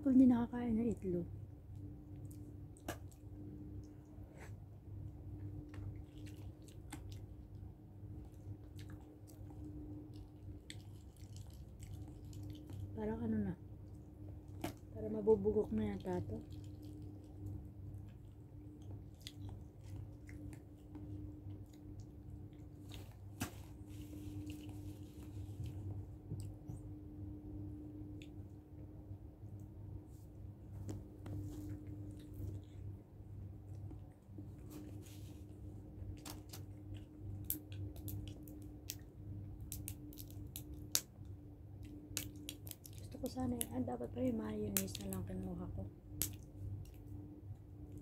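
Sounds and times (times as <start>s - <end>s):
steady low hum: 0.0s - 48.0s
close-up chewing: 5.3s - 13.0s, 16.0s - 26.8s, 30.8s - 41.1s, 41.8s - 43.2s
eggshell clicks and crackles: 36.1s - 47.2s.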